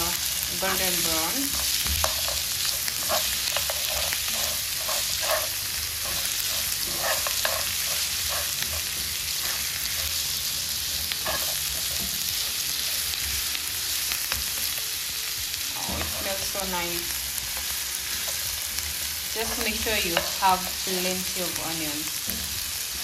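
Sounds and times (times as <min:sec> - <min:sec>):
meat and onions sizzling in pan: 0:00.0 - 0:23.0
utensil scraping and knocking pan: 0:01.5 - 0:10.1.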